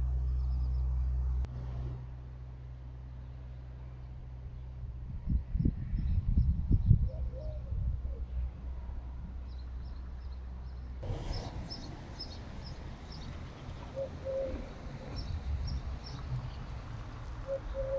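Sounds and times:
low background rumble: 0.0s - 17.6s
low cooing call: 7.0s - 8.4s, 13.5s - 15.3s, 17.4s - 17.9s
small birds chirping: 9.4s - 17.9s.

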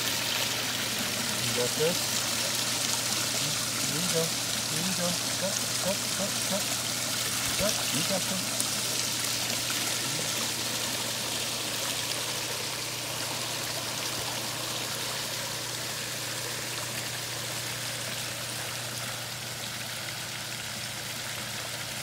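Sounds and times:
water splashing into a basin: 0.0s - 15.0s.

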